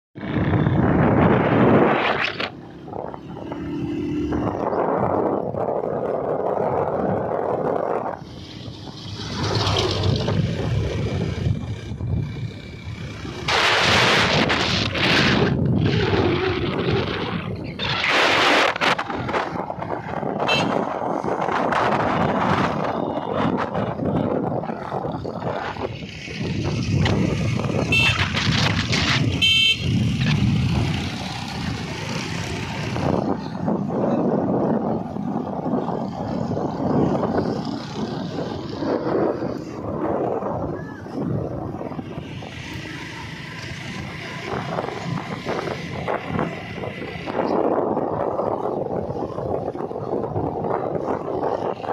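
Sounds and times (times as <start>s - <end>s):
road traffic noise: 0.2s - 51.9s
wind buffeting microphone: 0.2s - 51.9s
short high vehicle horn toots: 20.5s - 20.9s.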